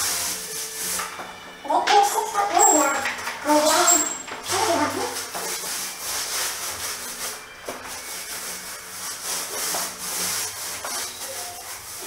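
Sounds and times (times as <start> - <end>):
paint roller rubbing on wall: 0.0 - 12.0.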